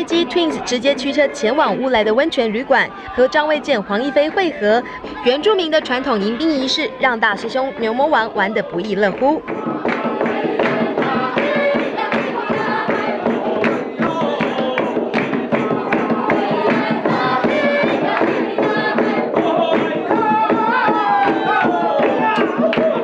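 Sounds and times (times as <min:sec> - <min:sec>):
group of voices singing: 0:00.0 - 0:23.0
hand drum beat: 0:08.9 - 0:23.0.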